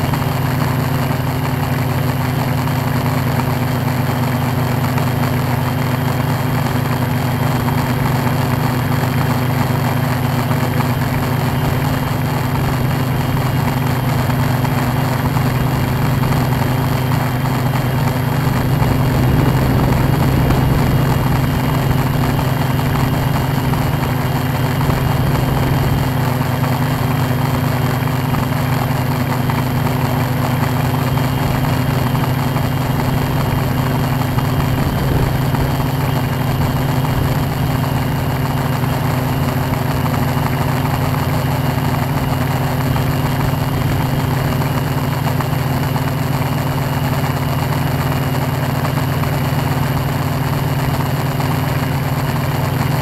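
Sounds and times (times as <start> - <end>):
drone motors humming: 11.7 - 28.0.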